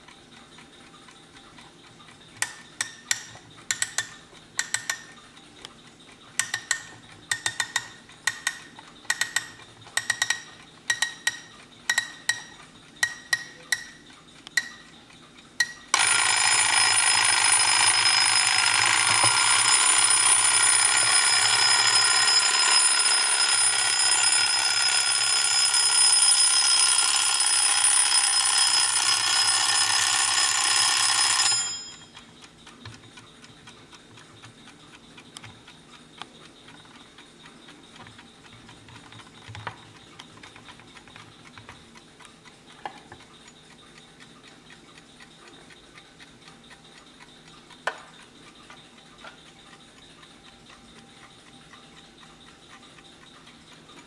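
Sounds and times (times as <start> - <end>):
alarm clock clicking: 0.0 - 54.0
alarm clock bell ringing: 15.9 - 32.2.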